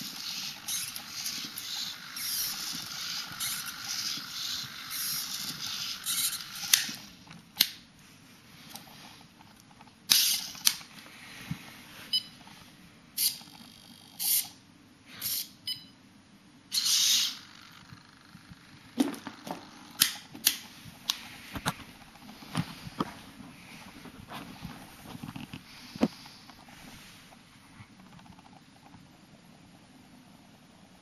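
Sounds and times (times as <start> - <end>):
servo motors whirring: 0.0 - 7.2, 16.7 - 18.4.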